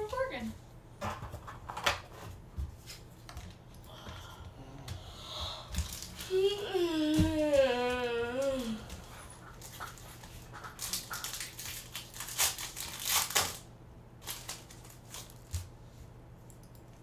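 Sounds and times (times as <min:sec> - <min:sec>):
foil wrapper crinkling: 0:05.8 - 0:06.4, 0:07.5 - 0:15.7.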